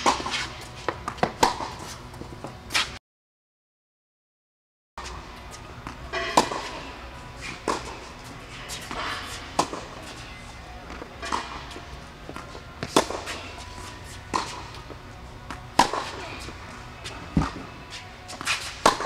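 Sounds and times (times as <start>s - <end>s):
tennis racket hitting ball: 0.0s - 2.0s, 5.8s - 10.2s, 10.9s - 19.0s.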